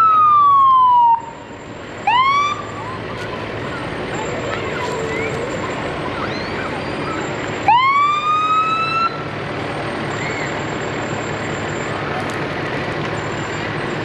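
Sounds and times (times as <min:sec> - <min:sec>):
siren whoop: 0:00.0 - 0:01.4, 0:02.0 - 0:03.1, 0:05.0 - 0:09.2
steady background noise: 0:00.0 - 0:14.0.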